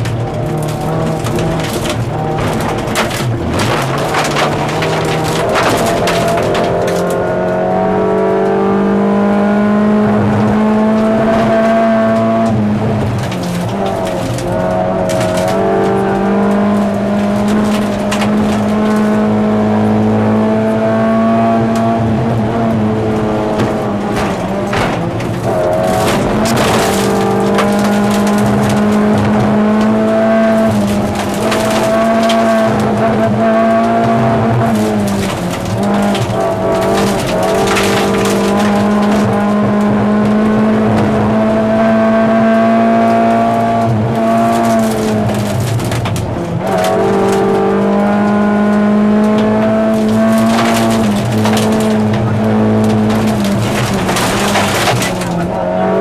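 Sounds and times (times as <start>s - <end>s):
car engine at high revs: 0.0s - 56.0s
gravel rattling against car: 0.0s - 56.0s.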